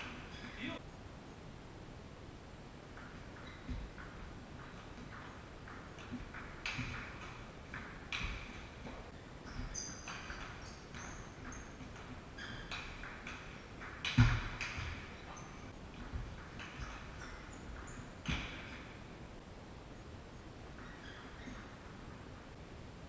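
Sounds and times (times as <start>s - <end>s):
ping pong ball clicking: 2.9s - 18.9s
short high squeaks: 9.4s - 13.2s.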